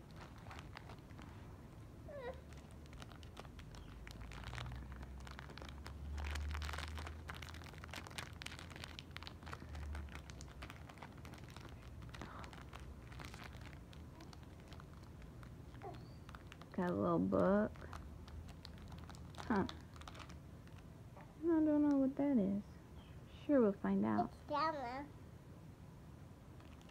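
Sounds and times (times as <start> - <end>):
plastic wrapper crinkling: 0.0 - 20.9, 26.6 - 26.9.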